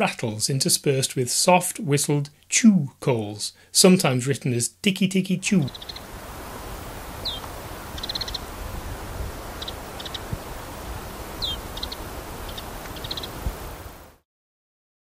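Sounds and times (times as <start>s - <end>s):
soft whistled bird notes: 5.6s - 6.1s, 7.2s - 8.5s, 9.6s - 10.3s, 11.4s - 13.5s
bird rattle calls: 5.6s - 13.7s.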